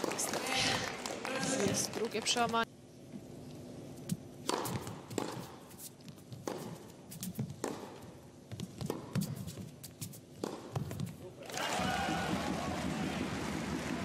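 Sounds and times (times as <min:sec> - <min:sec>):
ball bouncing: 0:04.0 - 0:11.2
racket striking tennis ball: 0:04.0 - 0:11.2.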